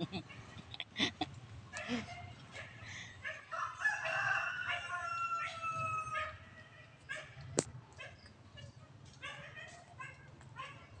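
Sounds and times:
rooster crowing: 3.5 - 6.4.

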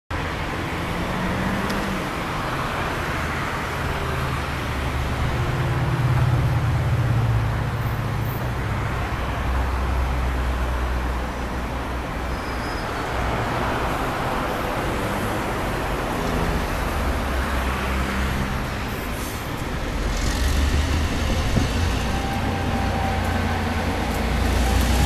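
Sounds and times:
city traffic noise: 0.1 - 25.0
train diesel engine rumble: 17.2 - 25.0.

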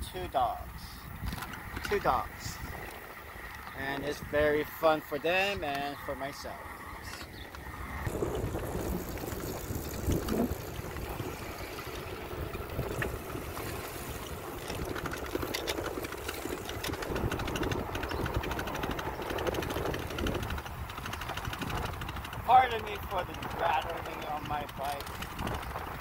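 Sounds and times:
bicycle rattling: 0.0 - 26.0
wind on microphone: 0.7 - 4.8, 6.9 - 26.0
low rumble: 6.4 - 21.1.

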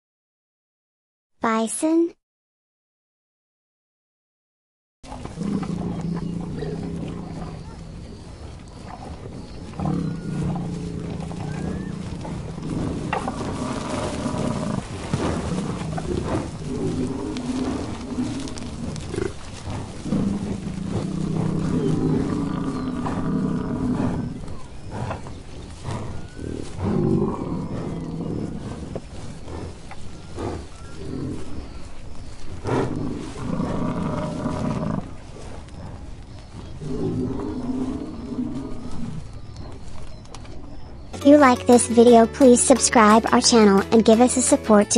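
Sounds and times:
bison grunting: 5.1 - 39.8.

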